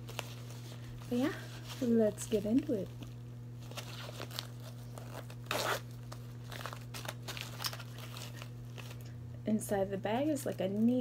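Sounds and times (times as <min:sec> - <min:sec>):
low electrical hum: 0:00.0 - 0:11.0
zipper rasp: 0:05.0 - 0:05.8.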